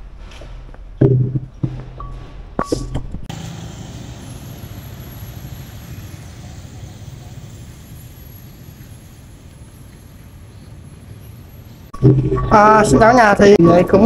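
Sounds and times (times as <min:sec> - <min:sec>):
street traffic: 0:01.5 - 0:12.0.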